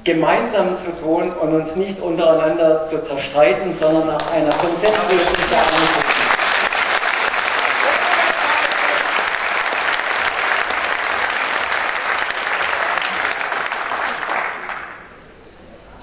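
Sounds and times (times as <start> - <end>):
audience applauding: 4.2 - 15.2.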